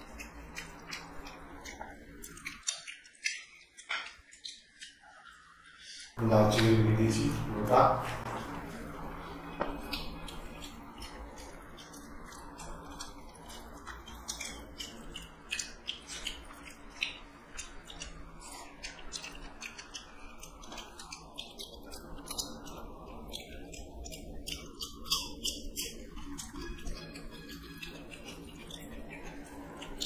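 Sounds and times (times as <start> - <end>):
wet chewing and mouth smacks: 0.0 - 6.0, 8.2 - 30.0
fingers mixing rice on steel plate: 8.3 - 30.0.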